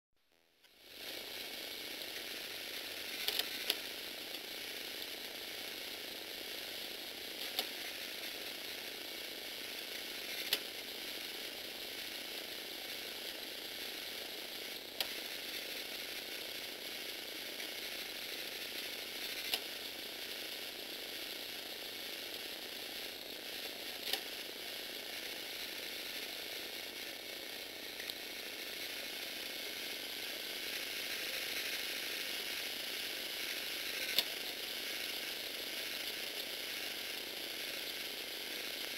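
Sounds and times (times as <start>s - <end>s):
plastic gears whirring and rattling: 3.0s - 4.4s.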